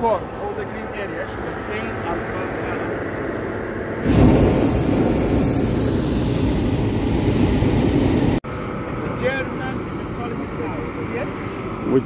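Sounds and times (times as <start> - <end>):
propane burner blasting: 2.4 - 8.4.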